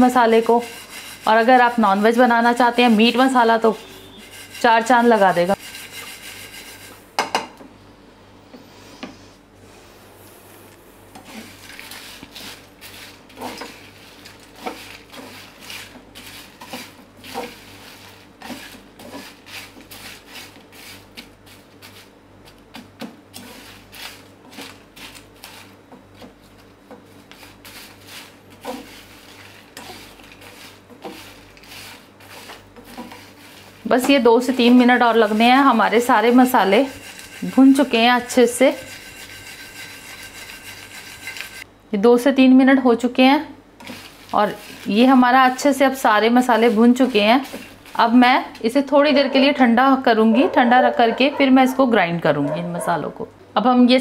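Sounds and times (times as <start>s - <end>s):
spatula scraping spices in pan: 0.0s - 7.0s, 11.2s - 41.7s, 43.8s - 48.8s.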